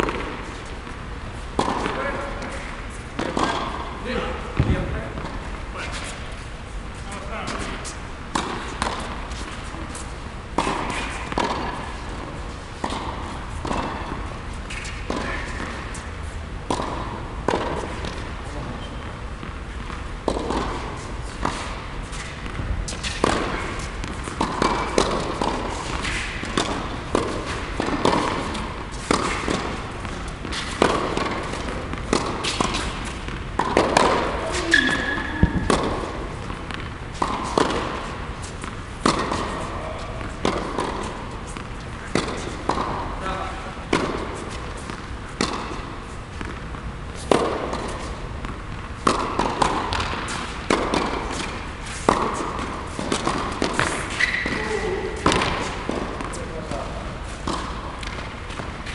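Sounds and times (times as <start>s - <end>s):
tennis ball bouncing on hard court: 0.0s - 6.2s, 7.1s - 18.4s, 19.0s - 58.9s
racket hitting tennis ball: 0.0s - 6.4s, 7.0s - 18.5s, 19.1s - 58.9s.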